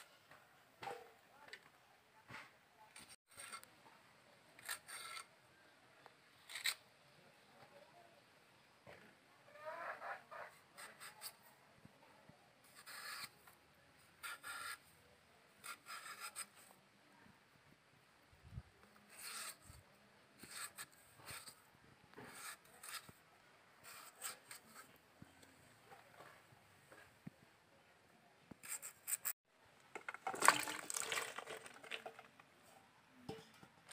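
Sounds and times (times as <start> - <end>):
blade scraping potato: 4.6 - 5.3, 6.4 - 6.8, 12.7 - 13.4, 14.2 - 14.9, 15.6 - 16.7, 19.0 - 19.8, 20.4 - 23.2, 23.8 - 24.9, 28.6 - 29.4.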